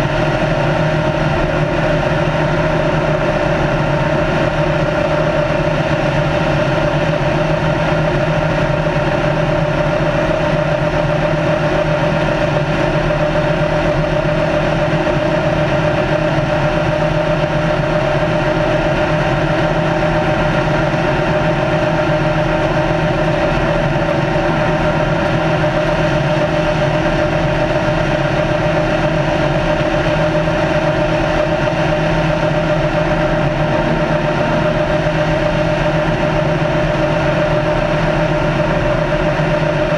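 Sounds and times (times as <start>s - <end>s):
race car engine droning: 0.0s - 39.9s
road and wind noise: 13.6s - 39.9s.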